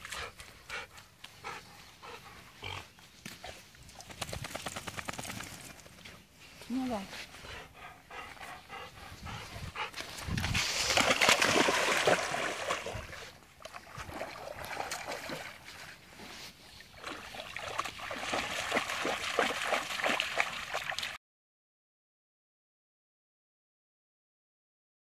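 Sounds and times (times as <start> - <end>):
dog wading and splashing water: 8.6 - 21.2.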